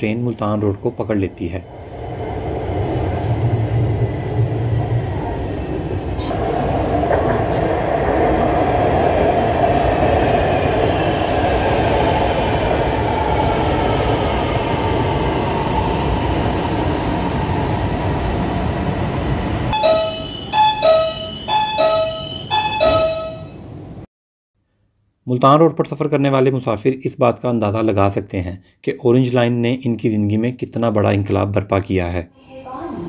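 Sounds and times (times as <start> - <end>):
metro train rumble and whine: 0.0 - 24.1
door-warning chime beeps: 19.8 - 23.6.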